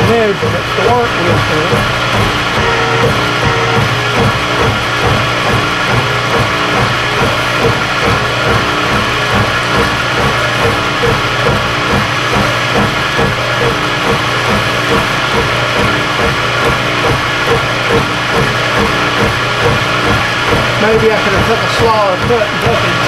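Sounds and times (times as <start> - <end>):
milling machine cutting metal: 0.0 - 23.0.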